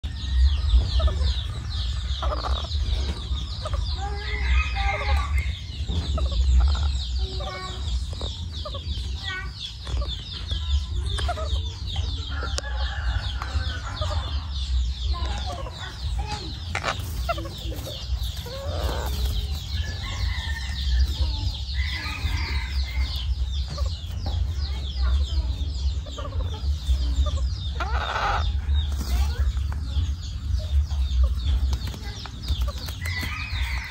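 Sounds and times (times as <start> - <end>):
baby parrots chirping: 0.0 - 33.9.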